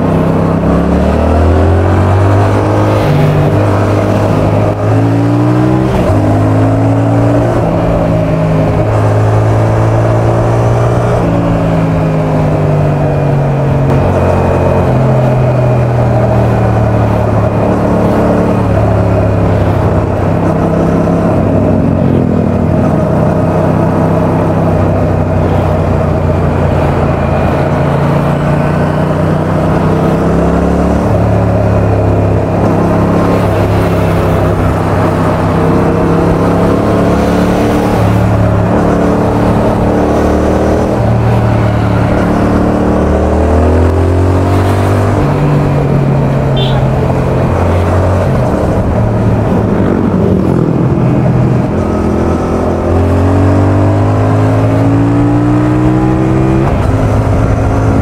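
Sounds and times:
muffled motorcycle engine revving: 0.0 - 58.0.

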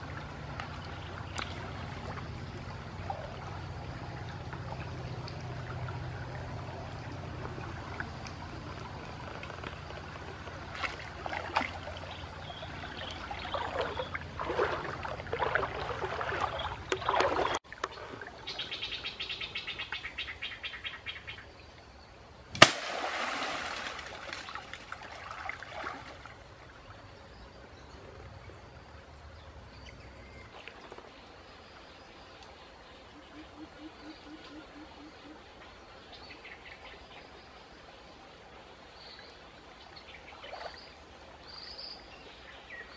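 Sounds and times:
water splashing and sloshing: 0.0 - 18.8, 22.5 - 27.5, 38.2 - 42.3
stream flowing: 0.0 - 42.9
birds calling: 11.8 - 21.5.

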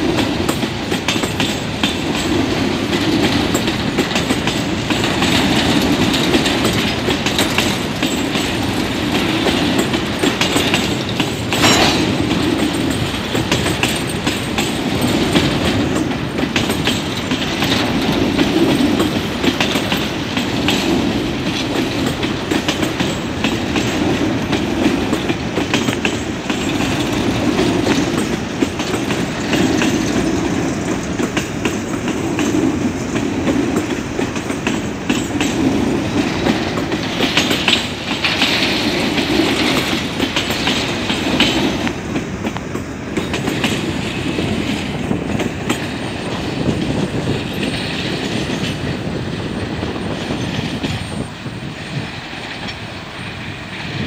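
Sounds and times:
freight train wagons rumbling: 0.0 - 54.0
wheels clattering over rail joints: 0.0 - 54.0.

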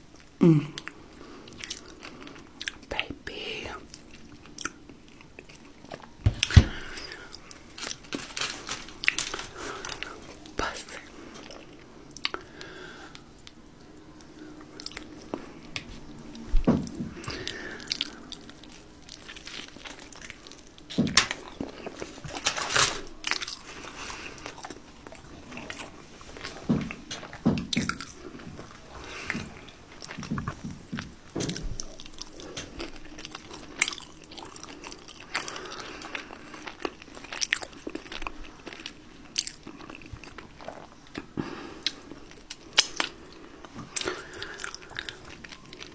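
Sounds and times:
person biting and chewing crunchy food: 16.9 - 45.9.

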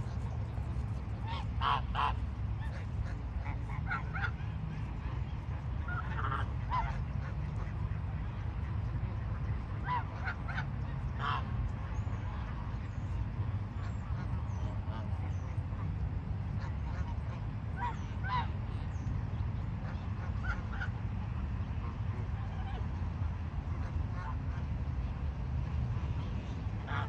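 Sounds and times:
geese honking: 0.0 - 8.6, 26.8 - 27.0
steady low rumble: 0.0 - 27.0.

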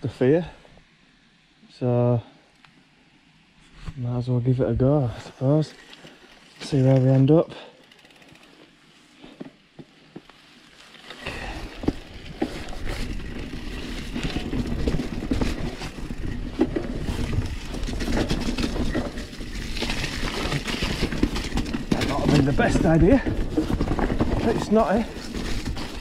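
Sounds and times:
bike tyres rumbling: 4.6 - 26.0
bike rattling with knocks: 5.4 - 26.0.

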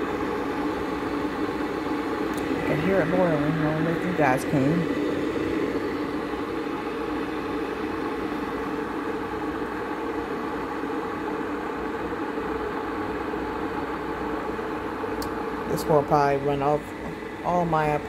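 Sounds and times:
water boiling in kettle: 0.0 - 18.0.

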